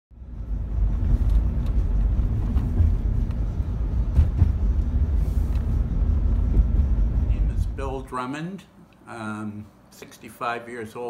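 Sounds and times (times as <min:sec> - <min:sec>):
car road noise rumble: 0:00.2 - 0:08.2.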